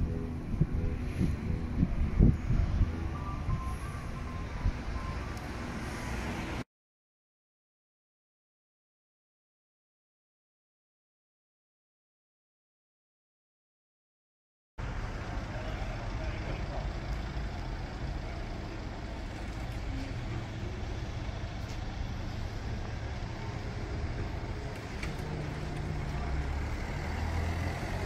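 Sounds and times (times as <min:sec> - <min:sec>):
deep engine rumble: 0:00.0 - 0:06.6, 0:14.8 - 0:28.0
vehicle engines running: 0:00.0 - 0:06.6, 0:14.8 - 0:28.0.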